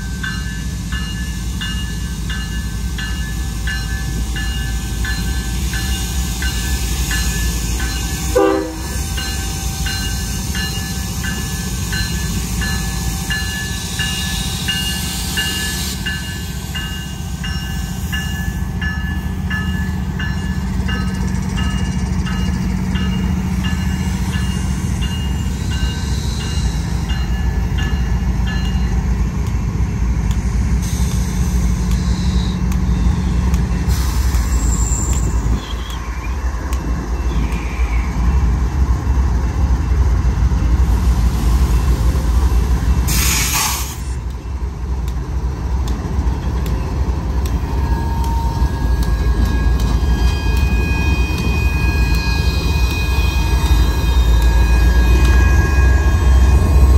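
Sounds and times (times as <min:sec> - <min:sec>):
locomotive engine rumble: 0:00.0 - 0:56.9
short hiss: 0:43.1 - 0:44.2.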